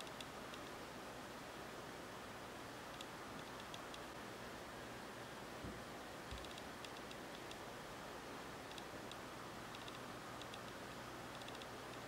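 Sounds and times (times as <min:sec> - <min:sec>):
steady hiss: 0:00.0 - 0:12.0
light ticks on plate: 0:06.3 - 0:07.6, 0:08.7 - 0:12.0.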